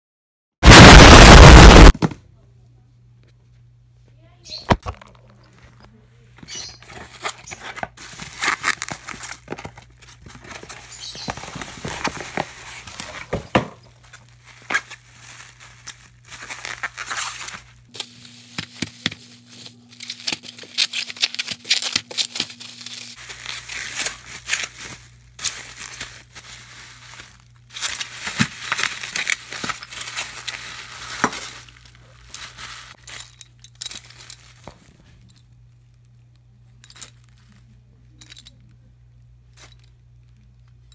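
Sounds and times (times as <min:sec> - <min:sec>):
bubble wrap crinkling: 0:06.7 - 0:37.8.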